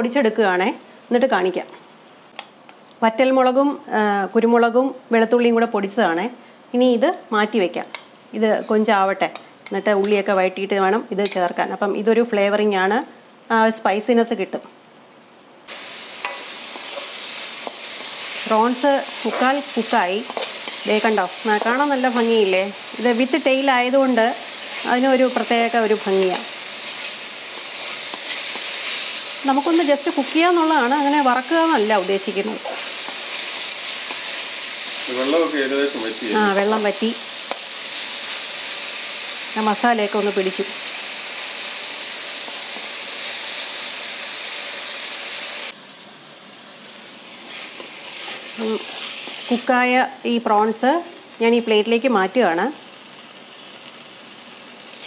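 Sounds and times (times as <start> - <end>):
prawns sizzling in oil: 7.4 - 55.0
metal ladle stirring in wok: 15.7 - 22.9, 24.4 - 35.1.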